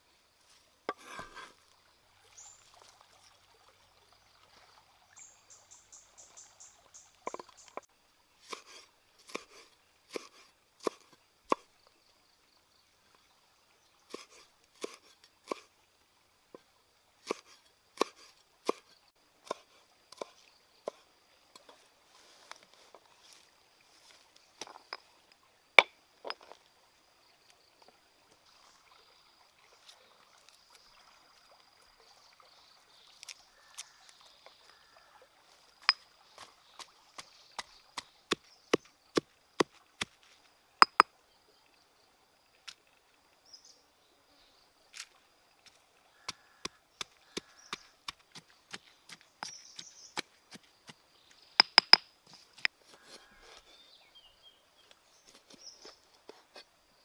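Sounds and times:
knife cutting on wooden board: 0:00.9 - 0:01.5, 0:08.5 - 0:11.6, 0:17.3 - 0:21.0
pestle pounding in stone mortar: 0:51.6 - 0:52.0.

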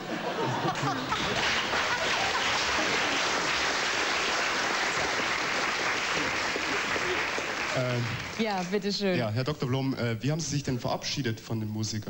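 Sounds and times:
audience laughter: 0:00.0 - 0:07.7
audience applauding: 0:00.0 - 0:09.0.

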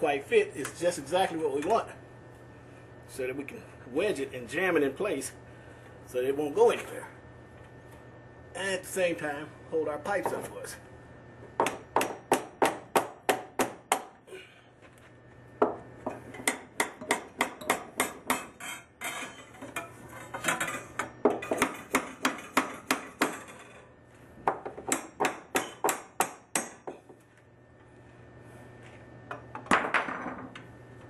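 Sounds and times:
hammer striking metal pipe brace: 0:24.9 - 0:27.0.

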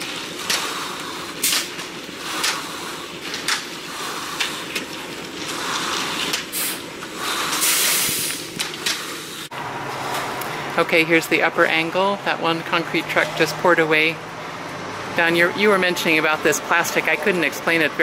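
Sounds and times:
tools scraping wet concrete: 0:00.0 - 0:10.6
hissing rush: 0:00.1 - 0:09.5.

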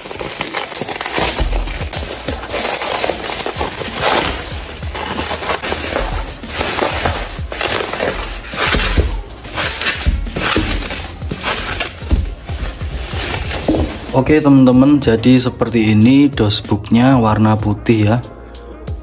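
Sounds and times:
bubble wrap crinkling: 0:00.0 - 0:14.4.

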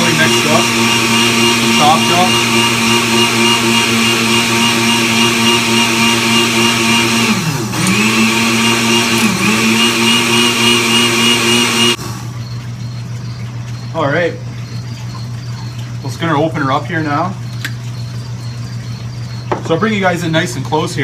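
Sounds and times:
blender motor whine: 0:00.0 - 0:12.7.

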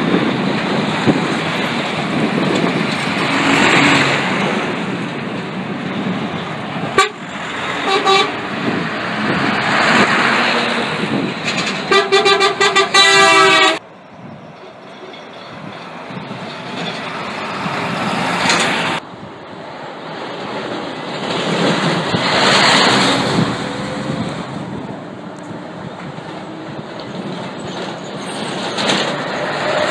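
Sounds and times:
lorry engines driving past: 0:00.0 - 0:14.0, 0:15.8 - 0:29.9
road noise: 0:00.0 - 0:29.9
truck horn blasts: 0:06.9 - 0:08.5, 0:11.9 - 0:13.8.

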